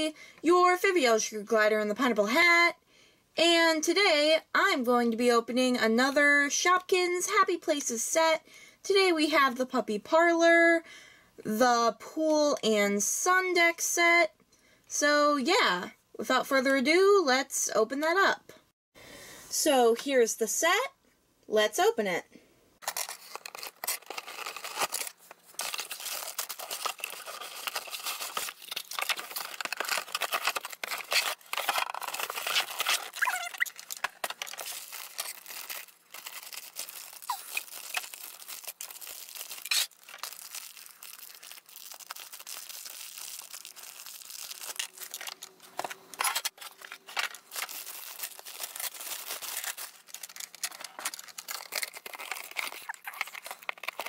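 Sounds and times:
packaging crinkling and tearing: 22.8s - 54.0s.

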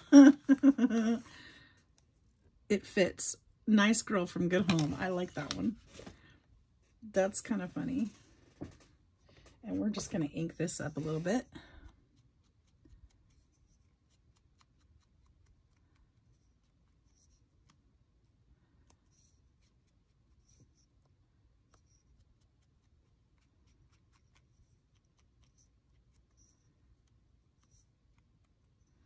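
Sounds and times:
low room hum: 0.0s - 29.0s
scratchy pen strokes on paper: 9.6s - 17.8s, 18.8s - 29.0s.

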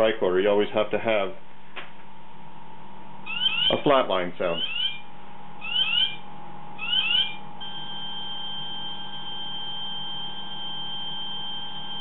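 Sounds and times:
low steady hum: 0.0s - 12.0s
high-pitched electronic flatline tone: 6.8s - 12.0s.

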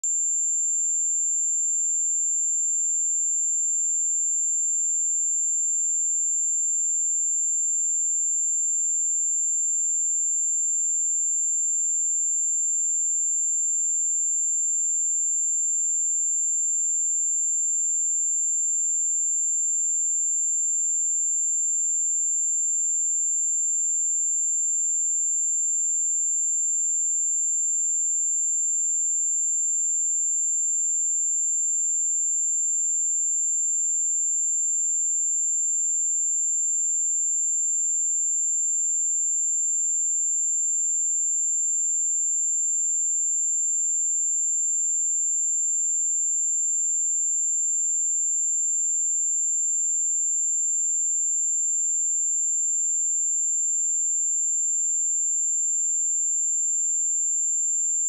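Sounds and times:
high-pitched sine test tone: 0.0s - 40.8s.

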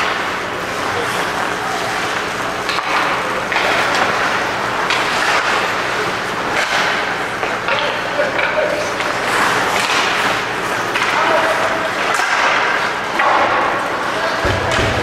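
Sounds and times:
arena noise: 0.0s - 15.0s
sharp knocks of sticks or puck: 2.6s - 4.3s, 6.5s - 13.7s
skates scraping on ice: 8.5s - 14.2s.

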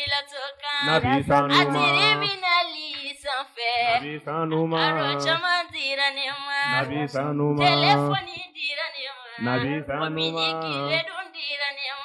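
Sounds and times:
person singing long held notes: 6.6s - 8.3s, 9.4s - 11.0s.

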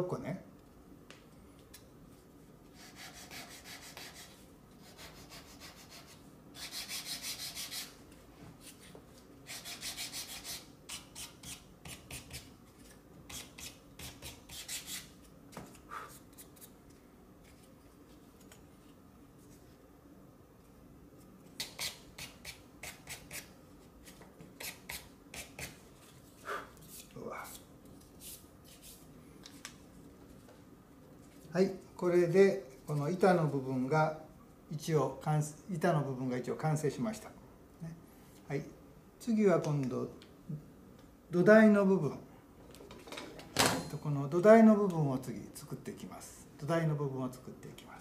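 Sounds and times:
sandpaper rubbing wood: 2.8s - 8.0s, 9.5s - 12.4s, 13.3s - 15.1s.

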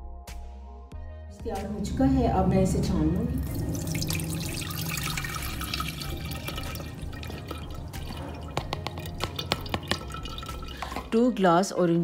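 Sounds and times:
low hum: 1.7s - 8.4s
juice trickling and dripping: 3.3s - 11.2s.

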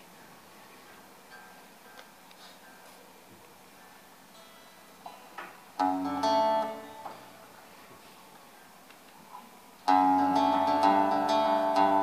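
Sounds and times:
plucked guitar chord: 5.8s - 7.4s, 9.9s - 12.0s
rock band playing loud chord: 5.8s - 7.4s.

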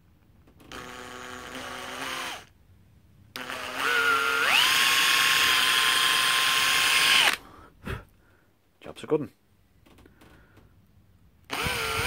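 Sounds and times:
cordless drill motor whine: 0.7s - 2.5s, 3.4s - 7.4s, 11.5s - 12.0s.

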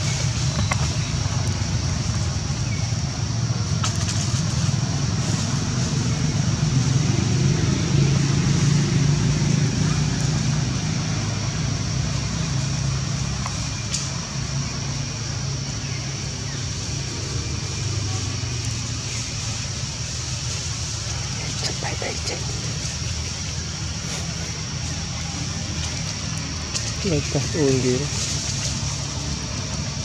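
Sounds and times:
high-pitched hiss: 0.0s - 30.0s.

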